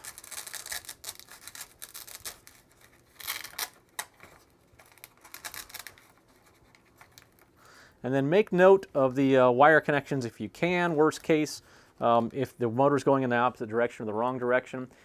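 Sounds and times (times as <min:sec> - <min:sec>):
hook-and-loop tape tearing: 0:00.0 - 0:07.4
scratching and rustling of hands: 0:00.0 - 0:07.6.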